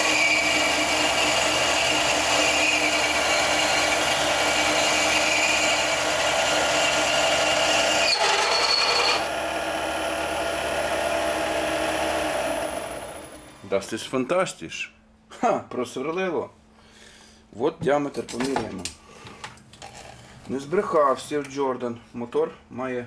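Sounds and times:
lathe drill grinding steel: 0.0s - 13.6s
motor whine: 0.0s - 13.6s
brief high squeal: 8.0s - 9.2s.

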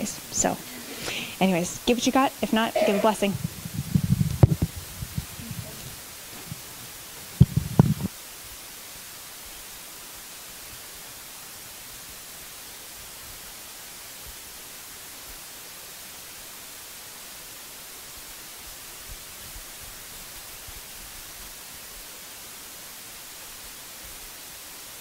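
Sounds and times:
steady hiss: 0.0s - 25.0s.

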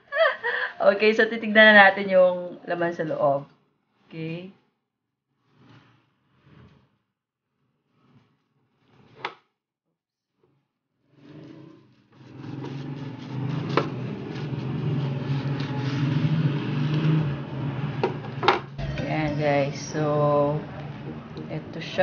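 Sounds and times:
motor drone with low hum: 17.4s - 21.9s.

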